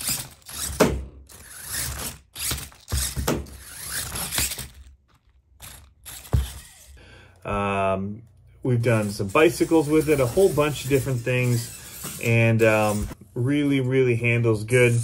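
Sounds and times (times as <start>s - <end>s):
toy truck gear drive whirring: 0.0s - 7.0s, 8.3s - 13.2s.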